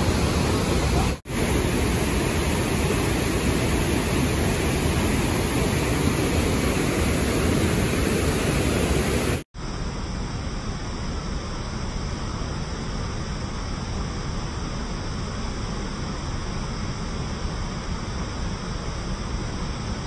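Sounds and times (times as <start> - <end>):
whitewater rushing through rocks: 0.0 - 9.4.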